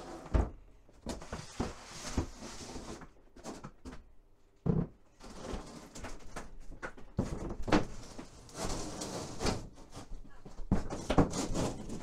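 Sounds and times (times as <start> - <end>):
plywood sheet scraping and knocking: 0.0 - 3.9, 4.6 - 12.0.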